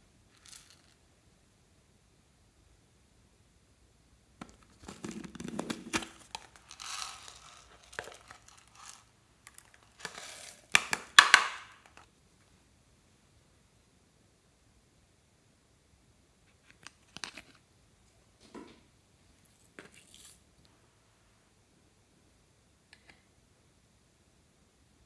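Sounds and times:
sprinkles rattling and pouring: 0:00.3 - 0:01.0, 0:04.9 - 0:12.0, 0:19.7 - 0:20.4
plastic jar opening: 0:04.4 - 0:12.1.

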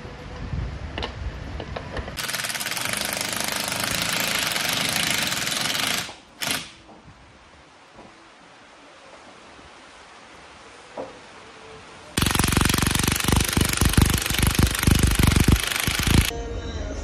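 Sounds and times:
impact driver hammering: 0:02.2 - 0:06.8, 0:12.2 - 0:16.3.

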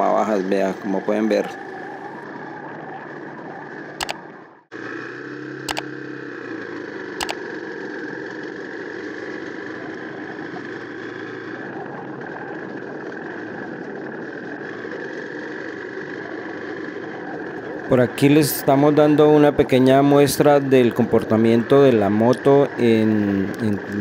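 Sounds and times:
motorcycle engine running: 0:04.8 - 0:24.0.

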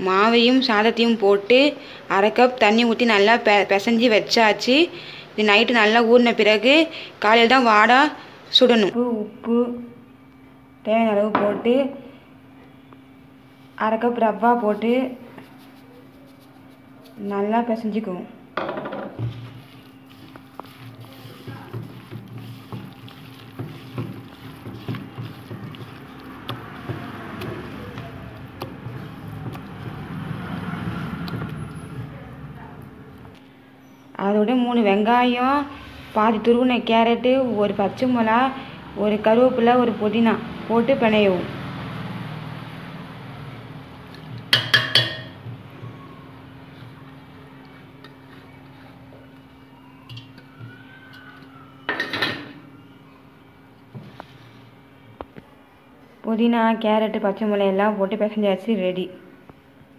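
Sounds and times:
hand kneading dough: 0:15.3 - 0:17.8, 0:19.2 - 0:32.2.

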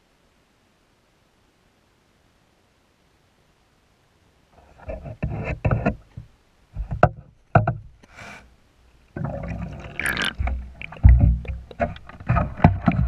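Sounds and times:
water rushing: 0:09.2 - 0:13.0.

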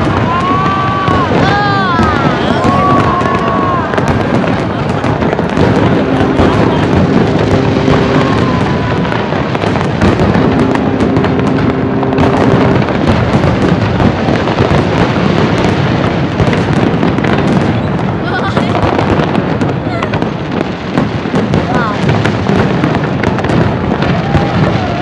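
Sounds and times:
fireworks bursting and crackling: 0:00.0 - 0:25.0
steady two-pitch tone: 0:10.4 - 0:12.8.

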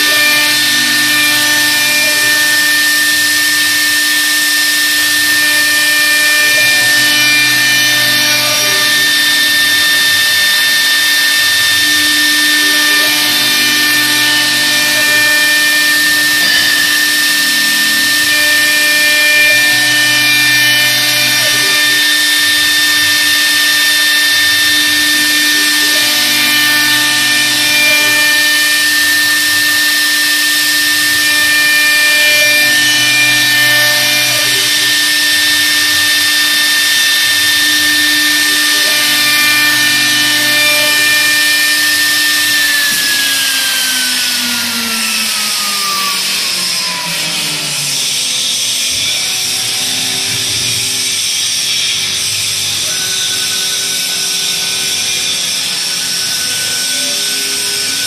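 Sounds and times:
lathe cutter whining: 0:00.0 - 0:58.0
wood cutting noise: 0:00.0 - 0:58.0.

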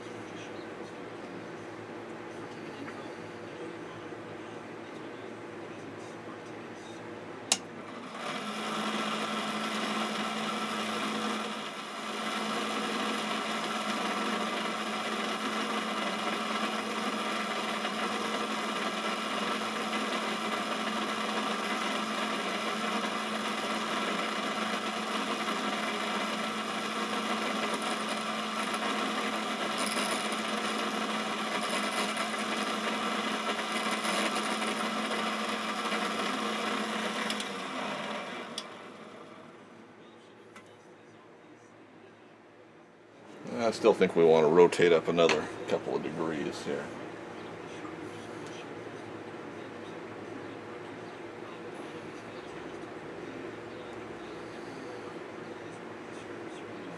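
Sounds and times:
motor hum: 0:07.5 - 0:39.8
grinding wheel hiss: 0:08.1 - 0:38.8.

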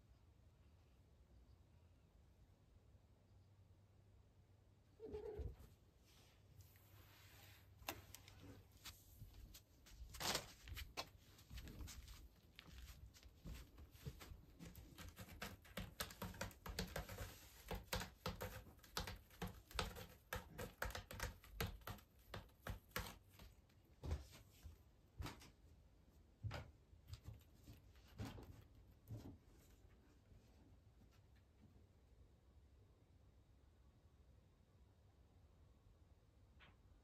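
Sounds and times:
cat claws scratching post: 0:13.9 - 0:23.7.

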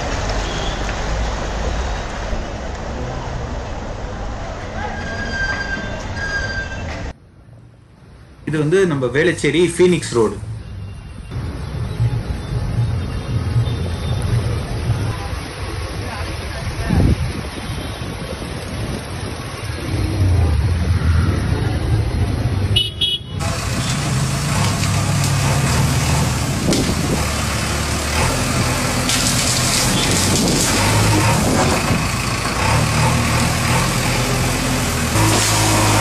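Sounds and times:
diesel engine running: 0:19.1 - 0:36.0
bucket shoving tree branches: 0:23.8 - 0:27.3, 0:28.2 - 0:32.0, 0:35.0 - 0:36.0.

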